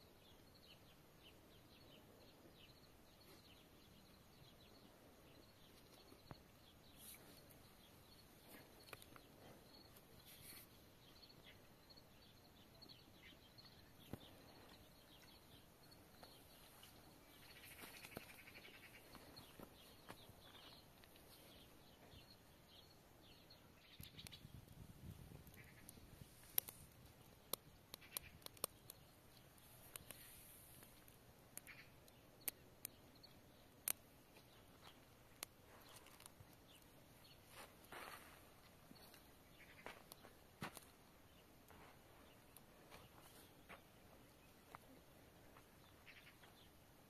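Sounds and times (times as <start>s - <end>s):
faint bird chirps: 0.0s - 47.0s
small clicks: 25.5s - 33.0s.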